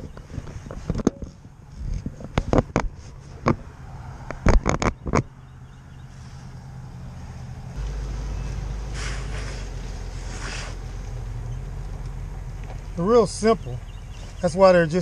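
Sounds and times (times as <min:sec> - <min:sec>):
vehicle engine rumbling: 0:00.0 - 0:15.0
rustling scrapes: 0:00.3 - 0:03.6, 0:08.9 - 0:11.1.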